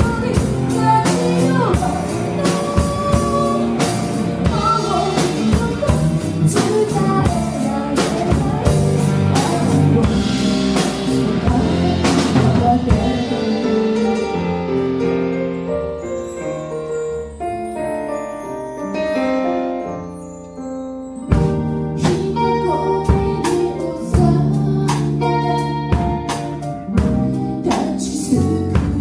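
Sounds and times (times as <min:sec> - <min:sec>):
woman singing: 0:00.0 - 0:14.3, 0:22.0 - 0:29.0
drums with cymbal crashes: 0:00.0 - 0:14.4
electric guitar: 0:00.0 - 0:15.4
bass guitar: 0:00.0 - 0:18.4, 0:21.2 - 0:29.0
keyboard: 0:00.0 - 0:29.0.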